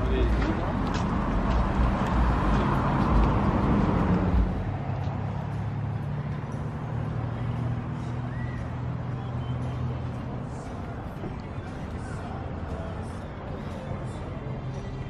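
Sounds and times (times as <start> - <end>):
car engine rumbling: 0.0 - 15.0.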